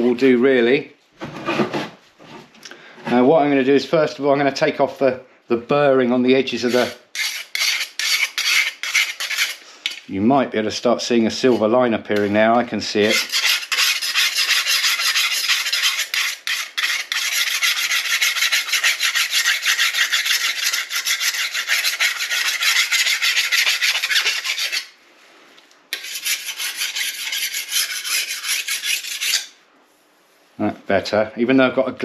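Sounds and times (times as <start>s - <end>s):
file rasping on steel: 6.6s - 9.6s, 13.0s - 24.9s, 25.9s - 29.5s.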